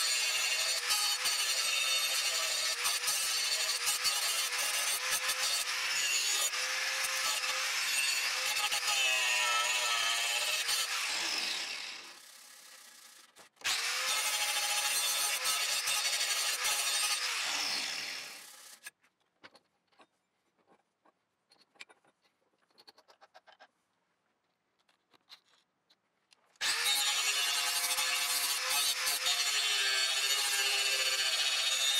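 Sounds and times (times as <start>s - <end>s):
angle grinder grinding metal: 0.0s - 12.3s, 13.6s - 18.9s, 26.6s - 31.9s.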